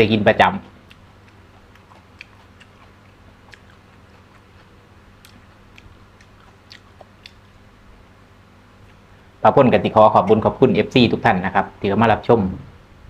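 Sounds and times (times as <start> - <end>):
low steady hum: 0.0 - 13.0
person chewing food: 0.8 - 7.7, 8.8 - 9.1.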